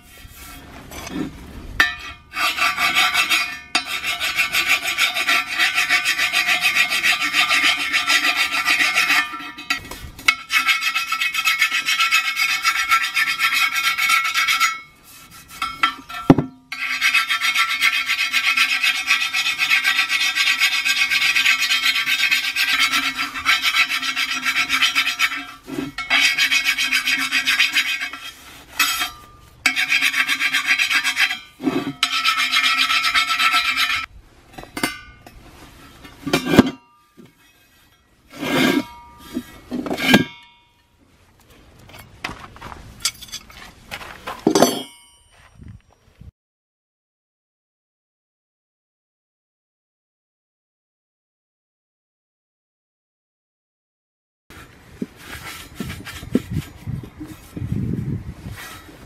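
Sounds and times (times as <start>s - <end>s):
metal tool scraping steel rim: 0.0s - 40.9s, 54.5s - 59.0s.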